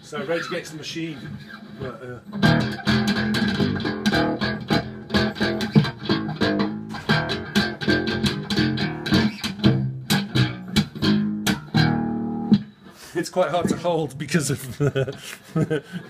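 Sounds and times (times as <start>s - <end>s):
slapped bass notes: 1.8s - 12.7s.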